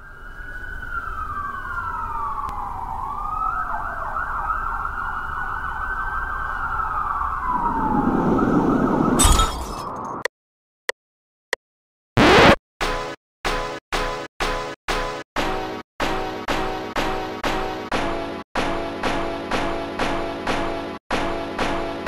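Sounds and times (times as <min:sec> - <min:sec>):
emergency sirens wailing: 0:00.0 - 0:09.2
low city rumble: 0:00.0 - 0:09.8.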